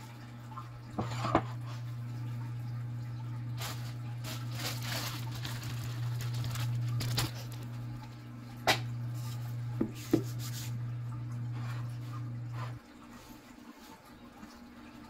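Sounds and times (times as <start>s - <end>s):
soft rustling of flour: 3.6s - 7.7s.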